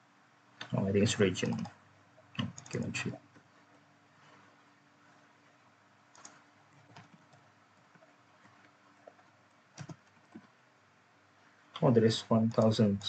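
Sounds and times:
computer keyboard typing: 1.0s - 1.8s, 2.4s - 3.2s, 6.1s - 10.6s, 12.4s - 13.0s.

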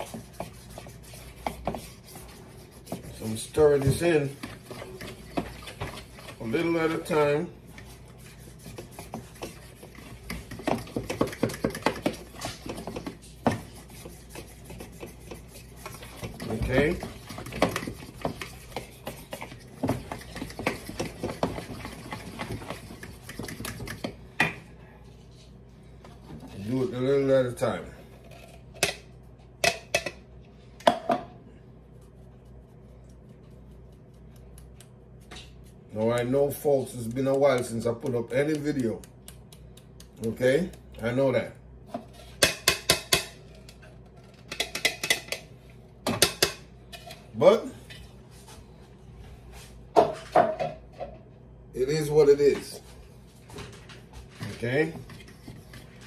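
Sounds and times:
flour sifting through wire sieve: 0.0s - 23.9s, 54.1s - 56.0s
utensil tapping and scraping bowl: 0.0s - 24.7s, 32.0s - 48.1s, 53.7s - 56.0s
utensil knocking bowl: 42.4s - 43.4s.

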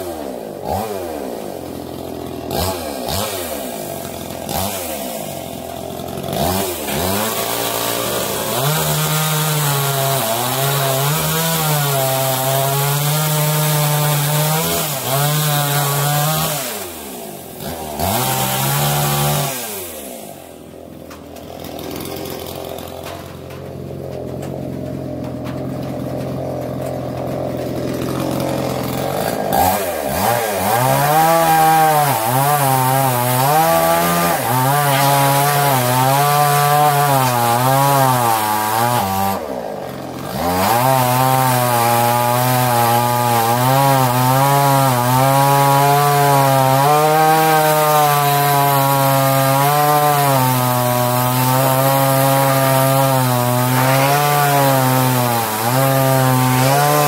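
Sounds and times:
chainsaw cutting wood: 0.0s - 57.0s.

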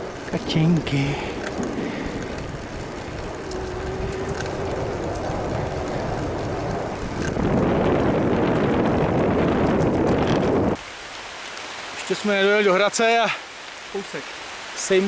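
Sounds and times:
wind on microphone: 0.0s - 10.8s
bicycle tyre noise on asphalt: 0.0s - 15.0s.

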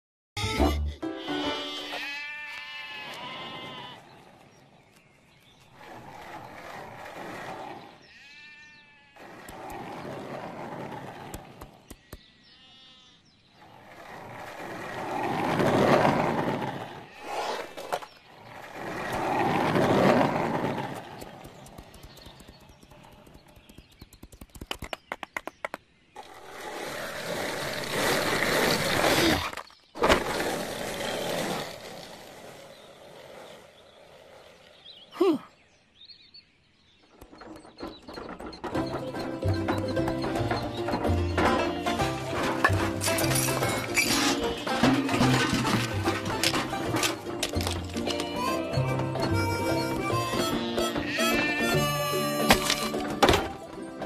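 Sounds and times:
cartoon soundtrack: 0.4s - 2.0s
sheep bleating: 0.4s - 4.1s, 8.1s - 9.3s, 12.5s - 13.2s, 50.0s - 52.5s
quick run of clicks: 20.8s - 25.9s.

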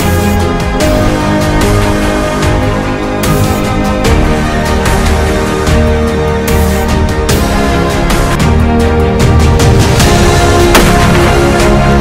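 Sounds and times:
drum beat: 10.7s - 11.7s.

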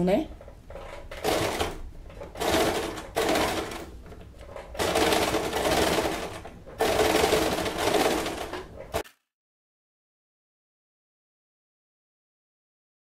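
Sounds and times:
electric sewing machine stitching: 1.1s - 9.0s.

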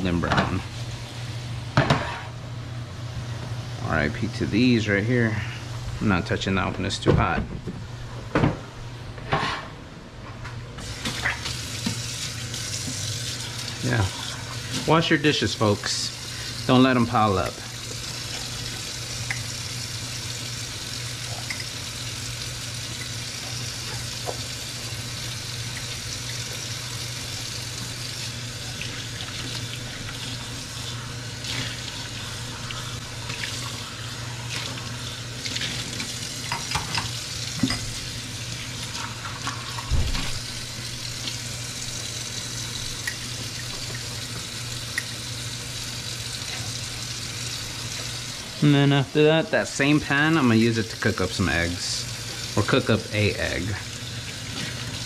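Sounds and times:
faucet running into metal sink: 10.8s - 48.4s, 49.7s - 55.0s.

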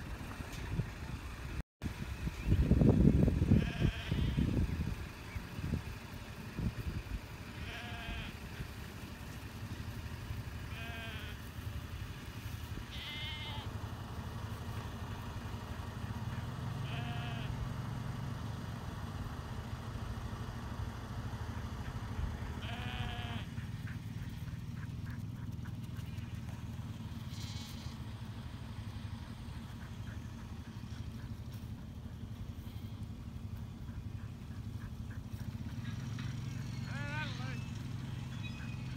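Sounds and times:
sheep bleating: 3.6s - 4.5s, 7.5s - 8.4s, 10.6s - 11.5s, 12.8s - 13.7s, 16.8s - 17.6s, 22.6s - 23.6s, 27.2s - 28.1s, 36.8s - 37.6s.

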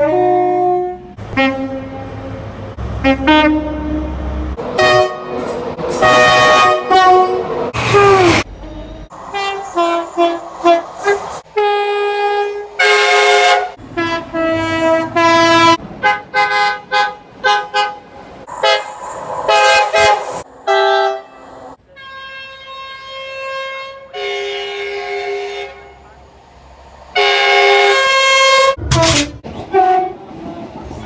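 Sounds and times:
train two-tone horn blasts: 0.0s - 2.4s, 3.0s - 26.2s, 27.1s - 30.4s.

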